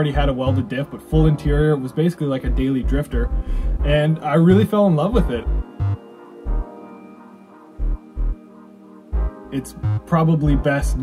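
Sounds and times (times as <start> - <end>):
deep bass beats: 0.0 - 1.7, 2.4 - 6.7, 7.8 - 8.4, 9.2 - 11.0.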